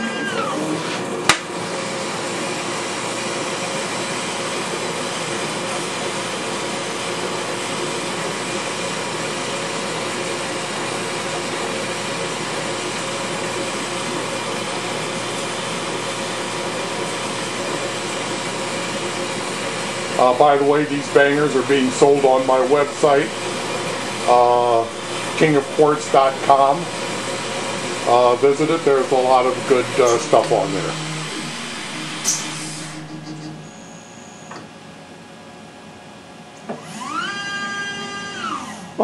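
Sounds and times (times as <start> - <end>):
gas burner lighting pop: 1.3 - 1.5.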